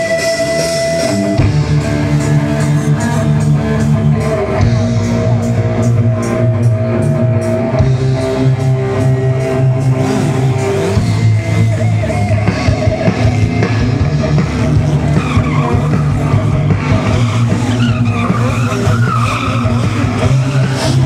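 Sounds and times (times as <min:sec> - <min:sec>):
rock music: 0:00.0 - 0:21.0
tyre squeal: 0:15.0 - 0:21.0.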